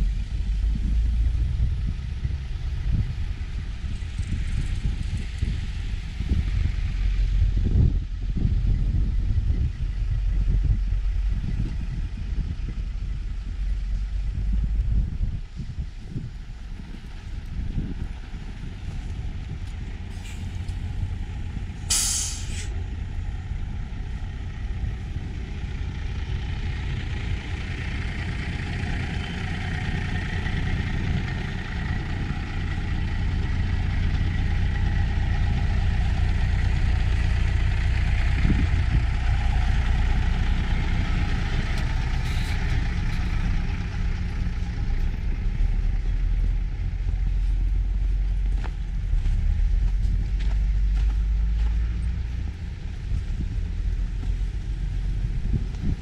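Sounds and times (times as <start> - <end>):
low engine rumble: 0.0 - 56.0
street noise: 0.0 - 56.0
bus air brakes hissing: 20.1 - 20.6, 21.8 - 22.8.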